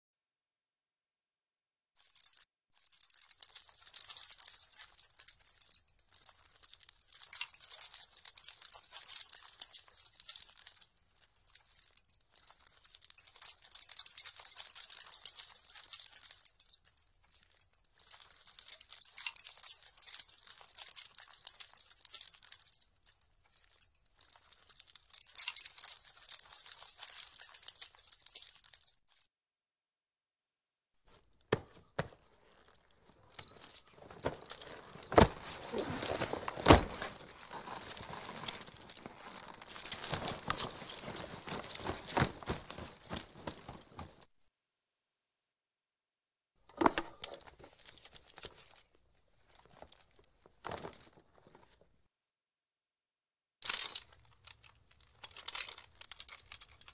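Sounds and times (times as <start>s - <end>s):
harness fittings and spurs jingling: 2.0s - 29.2s, 31.6s - 44.2s, 55.0s - 56.9s.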